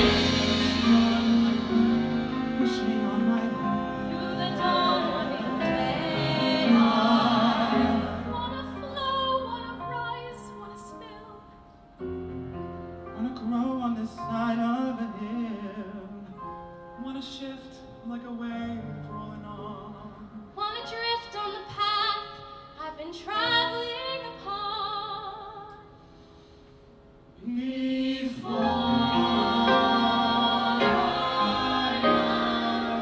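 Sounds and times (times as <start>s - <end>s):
vocal quartet singing harmonies: 0.0s - 11.4s, 27.3s - 33.0s.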